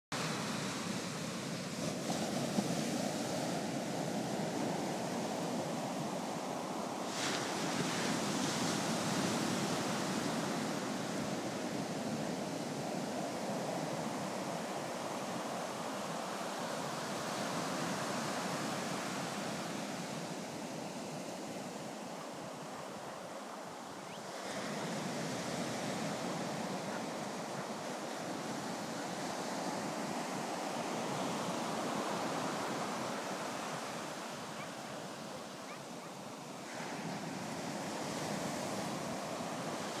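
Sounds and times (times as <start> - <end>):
surf washing up a beach: 0.1 - 40.0.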